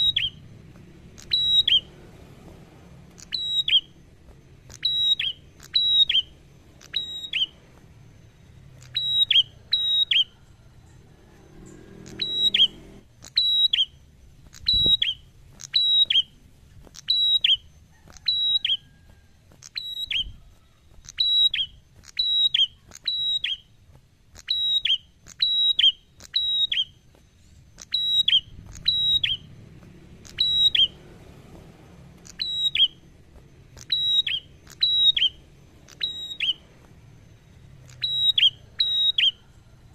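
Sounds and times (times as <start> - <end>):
bird whistled calls: 0.0 - 2.0, 3.1 - 29.6, 30.2 - 31.1, 32.2 - 39.9.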